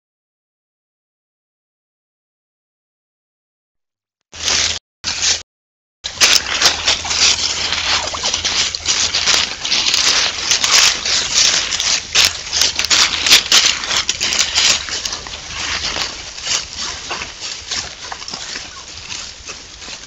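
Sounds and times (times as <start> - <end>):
turkeys scratching through dry leaves: 4.4 - 5.4, 6.1 - 20.0.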